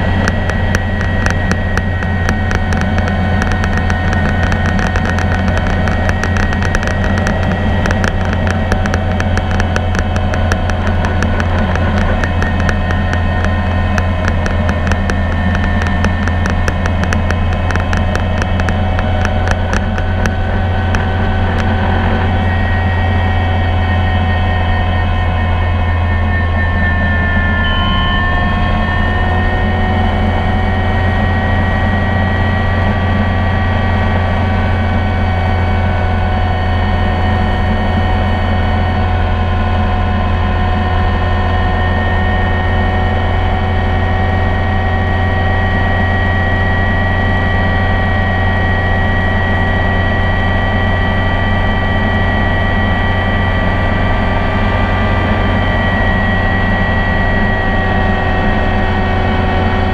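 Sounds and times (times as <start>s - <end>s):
helicopter high whine: 0.0s - 59.9s
helicopter rotor drone: 0.0s - 59.9s.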